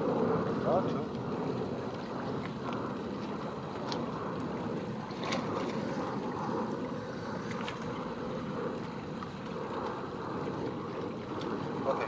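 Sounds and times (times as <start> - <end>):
water lapping at inflatable boat: 0.0 - 12.0
wind on microphone: 0.0 - 12.0.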